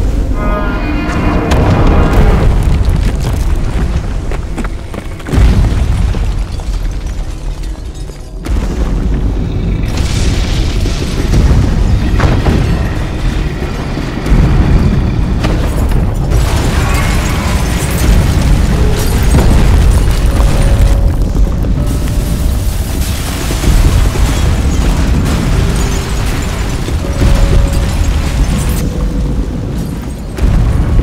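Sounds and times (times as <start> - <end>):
dramatic film music: 0.0 - 6.8, 7.7 - 31.0
deep booming and rumbling: 0.0 - 31.0
heavy booms: 8.4 - 29.8.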